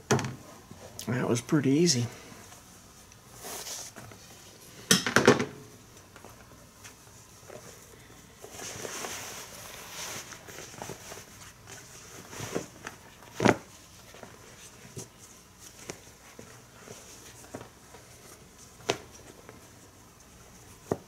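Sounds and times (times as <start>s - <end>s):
leather rustling and scuffing: 6.2s - 21.0s.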